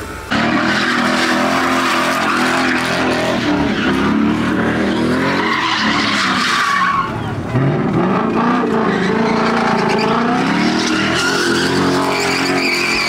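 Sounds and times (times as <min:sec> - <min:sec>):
car engine revving high: 0:00.3 - 0:13.0
tyres squealing: 0:00.3 - 0:13.0.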